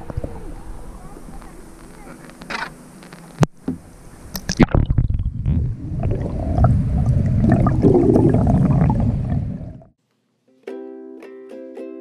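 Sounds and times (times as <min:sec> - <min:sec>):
water splashes: 0:03.9 - 0:10.0
muffled underwater rumble: 0:04.0 - 0:09.9.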